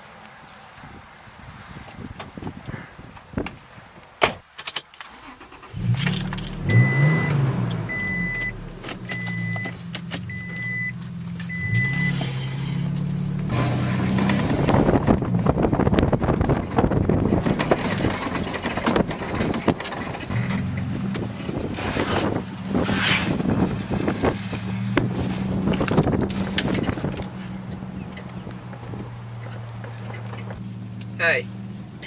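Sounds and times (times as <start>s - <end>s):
truck engine running: 5.8s - 32.0s
truck bed knocks and rattles: 14.2s - 22.4s.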